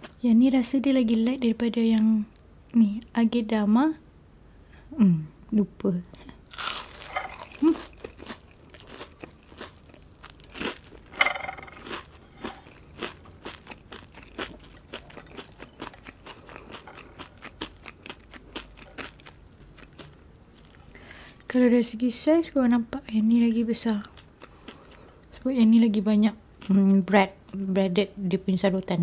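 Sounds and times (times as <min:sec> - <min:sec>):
crunchy chewing: 0:06.5 - 0:21.5, 0:23.4 - 0:25.2.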